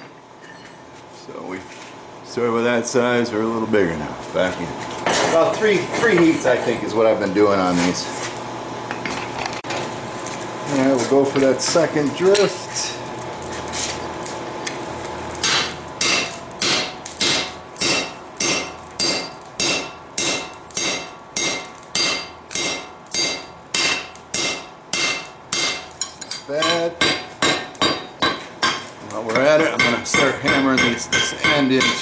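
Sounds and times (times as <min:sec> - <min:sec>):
hammer blows ringing on anvil: 0:15.4 - 0:26.0, 0:26.6 - 0:32.0.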